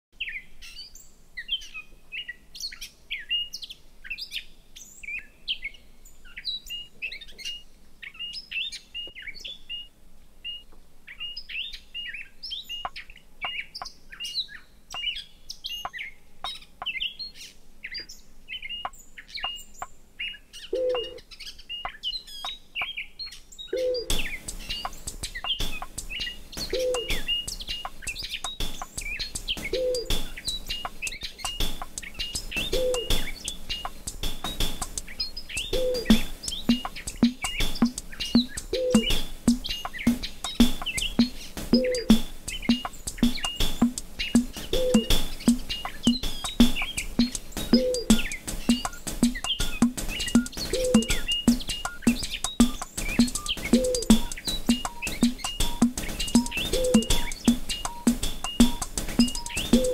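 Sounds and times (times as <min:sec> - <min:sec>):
birds chirping and trilling: 0:00.2 - 0:59.9
soft hiss with ticks: 0:24.0 - 0:59.9.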